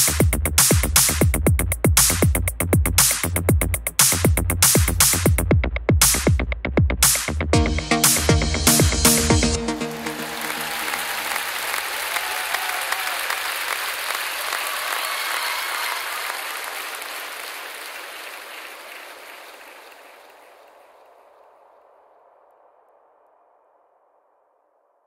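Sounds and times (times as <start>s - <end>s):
applause: 9.6s - 21.4s.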